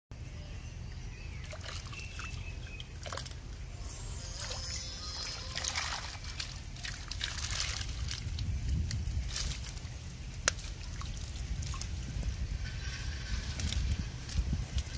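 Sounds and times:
water trickling and dripping: 1.4s - 3.7s, 4.3s - 12.6s
water splattering: 5.5s - 8.5s.

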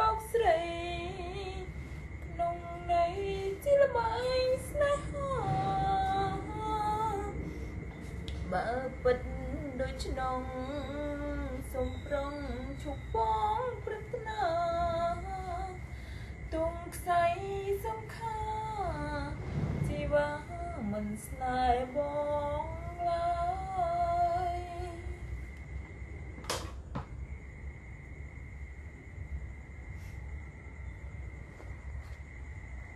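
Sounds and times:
woman singing unaccompanied: 0.0s - 25.4s.

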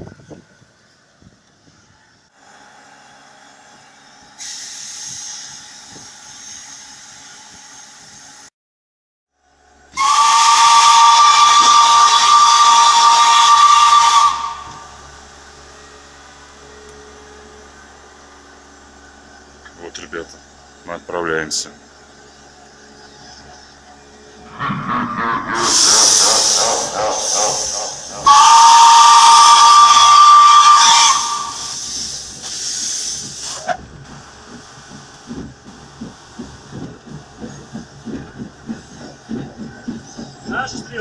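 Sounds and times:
steam hissing: 4.4s - 8.4s, 10.0s - 15.0s, 25.6s - 41.0s
steam whistle blast: 10.0s - 14.9s, 24.5s - 31.8s.

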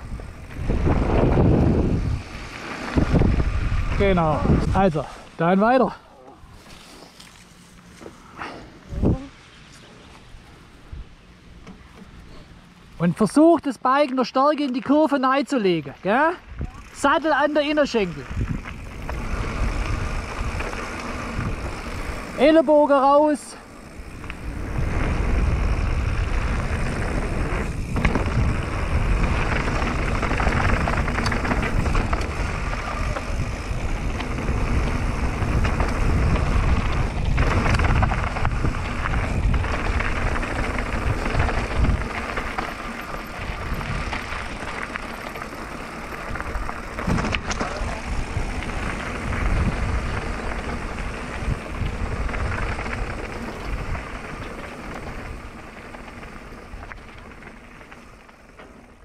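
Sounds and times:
wind on microphone: 0.0s - 5.1s, 18.2s - 22.4s, 23.9s - 42.6s, 43.4s - 44.7s, 46.2s - 55.5s
bike tyres rolling over gravel: 0.0s - 8.6s, 11.8s - 59.0s
bike knocking over bumps: 26.6s - 59.0s.

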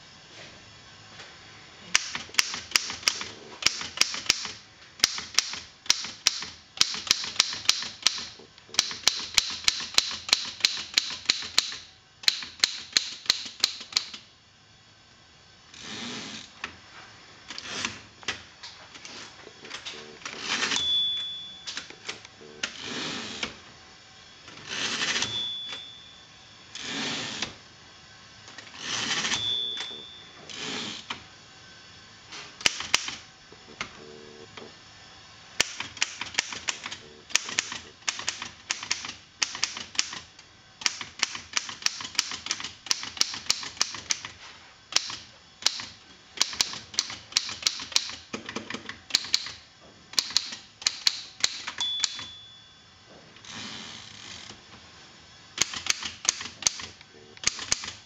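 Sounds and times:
typewriter keystroke clacks: 2.0s - 14.2s, 35.6s - 40.2s, 40.8s - 44.3s, 45.0s - 49.6s, 55.6s - 58.0s
typewriter carriage sliding: 19.0s - 20.9s, 24.5s - 25.5s, 28.8s - 29.9s
typewriter bell ring: 20.7s - 21.8s, 25.1s - 26.2s, 29.2s - 30.3s, 51.8s - 52.7s.

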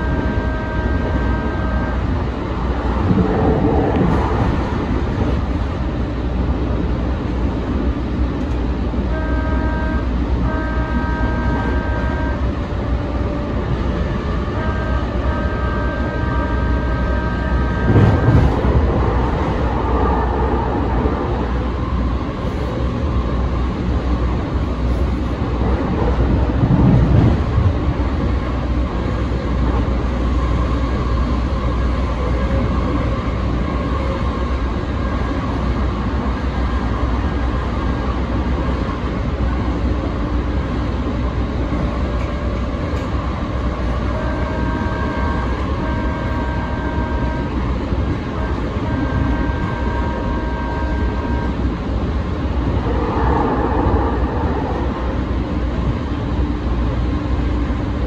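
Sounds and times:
tram wheels rumbling: 0.0s - 58.0s
steady tone: 43.3s - 58.0s.

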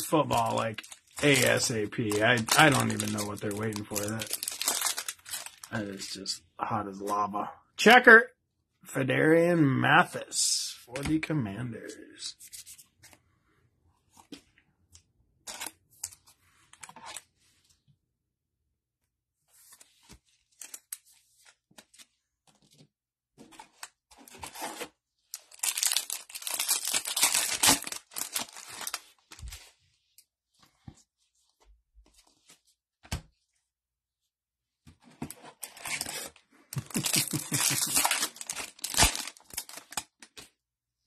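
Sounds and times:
cards clicking and rustling: 0.2s - 5.6s, 35.6s - 40.4s
foil wrappers tearing and crinkling: 0.3s - 5.7s, 25.4s - 29.1s, 35.6s - 40.0s.

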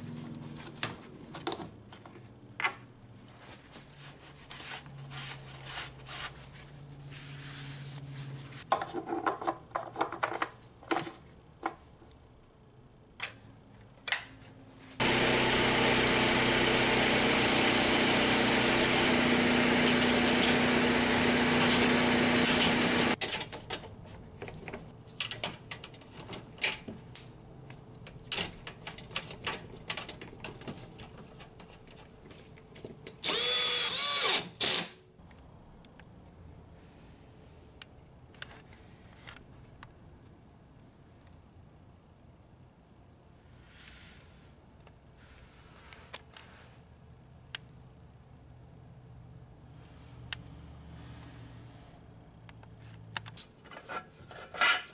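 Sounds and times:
clicks and knocks of parts: 8.7s - 12.2s, 23.2s - 33.2s
drill-driver whining: 15.0s - 23.2s, 33.2s - 35.0s.

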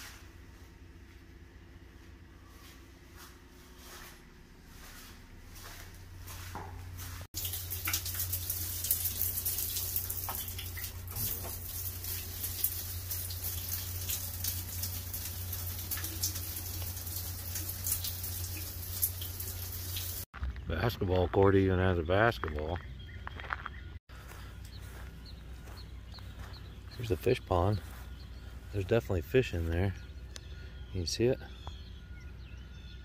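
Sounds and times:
shower water running: 7.3s - 20.3s.

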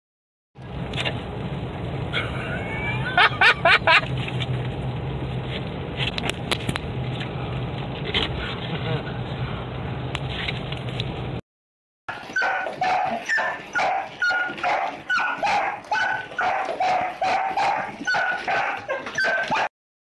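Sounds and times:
car road noise: 0.6s - 11.4s
dog barking: 12.1s - 19.7s.

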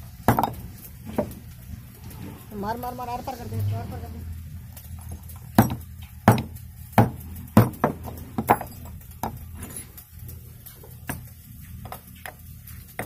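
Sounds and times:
tools set down knocks: 7.6s - 9.4s.

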